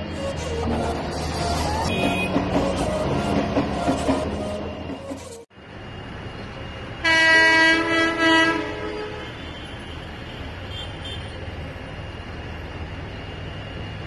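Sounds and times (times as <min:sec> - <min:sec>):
low rumble of rail traffic: 0:00.0 - 0:14.0
train horn blast: 0:01.9 - 0:02.5, 0:07.0 - 0:09.9.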